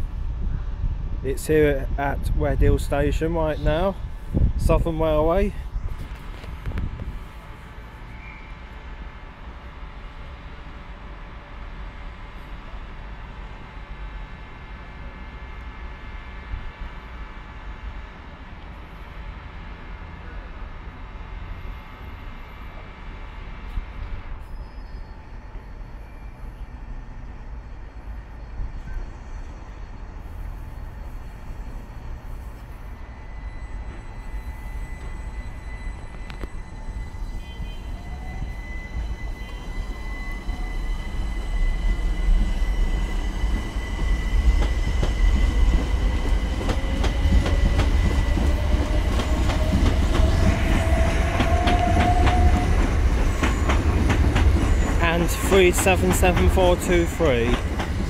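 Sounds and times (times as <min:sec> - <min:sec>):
electric train motor whine: 0:30.2 - 0:55.0.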